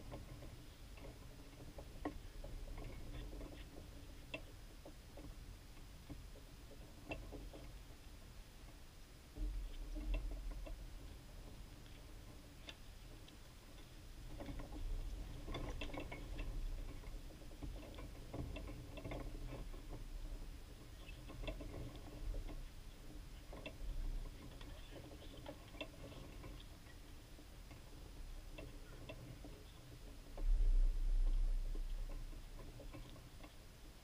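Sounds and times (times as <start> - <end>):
light ticks and taps: 0.0 - 7.9, 9.4 - 30.6
steady low rumble: 30.1 - 33.4.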